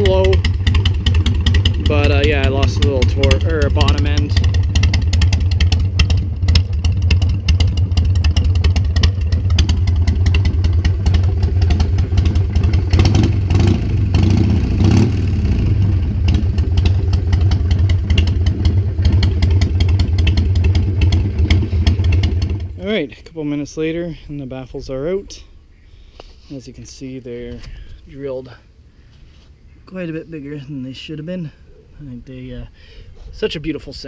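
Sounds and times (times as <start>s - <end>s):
motorcycle engine idling: 0.0s - 23.4s.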